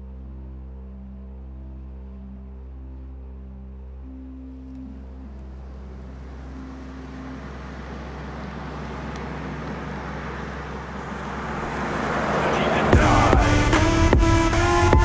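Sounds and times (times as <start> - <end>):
low steady drone: 0.0 - 15.0
car approaching on road: 3.8 - 15.0.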